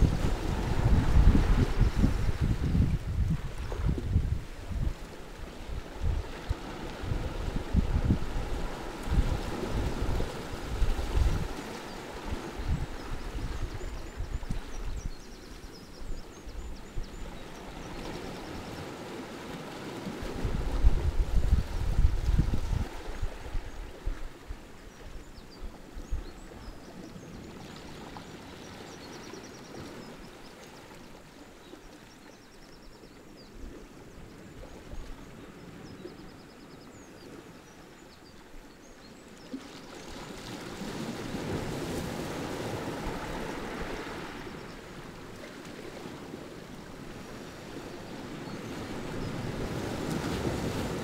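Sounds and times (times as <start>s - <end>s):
waves washing over pebbles: 0.0s - 13.0s, 39.9s - 51.0s.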